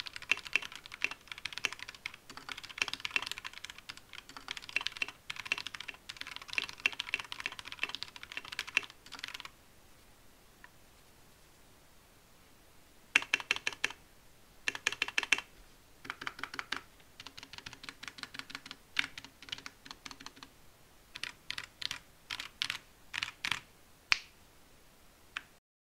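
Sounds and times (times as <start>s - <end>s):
mechanical keyboard typing: 0.0s - 9.5s, 13.2s - 14.0s, 14.7s - 20.5s, 21.1s - 23.6s.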